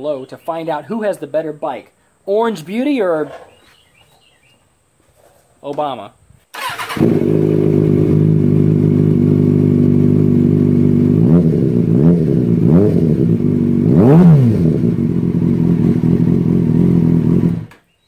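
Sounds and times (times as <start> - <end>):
motorcycle engine idling and revving: 6.6 - 17.8.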